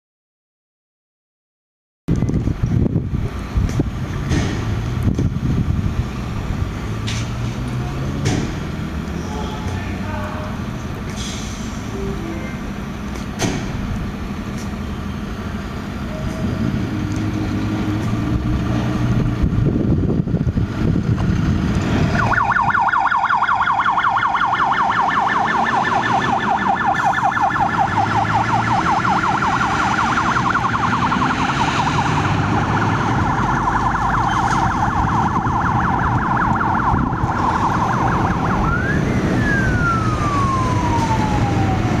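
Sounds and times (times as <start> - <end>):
fire truck diesel engine: 2.1 - 42.0
siren warbling and wailing: 22.1 - 42.0.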